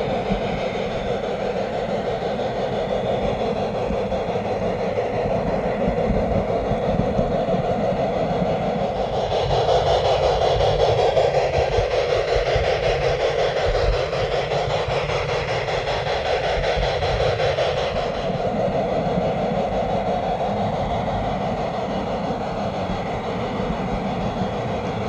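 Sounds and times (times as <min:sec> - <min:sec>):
model train rolling on track: 0:00.0 - 0:25.0.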